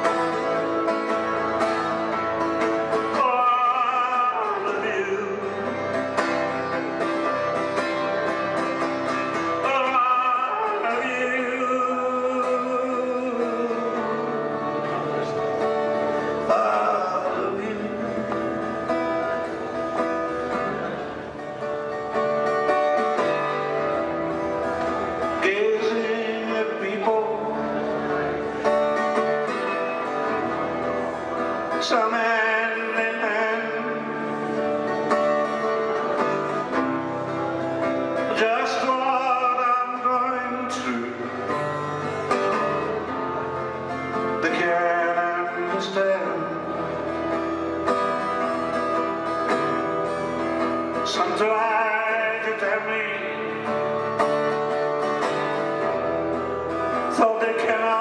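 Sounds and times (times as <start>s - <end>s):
plucked acoustic guitar: 0.0s - 58.0s
person singing: 8.8s - 19.9s.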